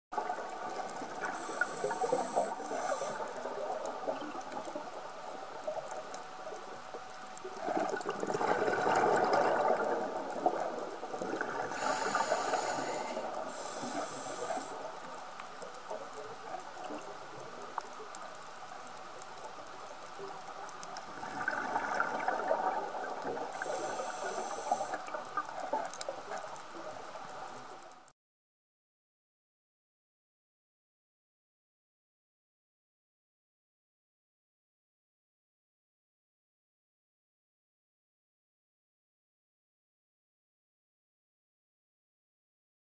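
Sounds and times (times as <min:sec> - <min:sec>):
underwater crackle: 0:00.1 - 0:28.1
exhaled air bubbling: 0:00.2 - 0:18.2, 0:20.2 - 0:27.0
scuba regulator inhale hiss: 0:01.2 - 0:03.4, 0:11.7 - 0:14.9, 0:23.5 - 0:25.1.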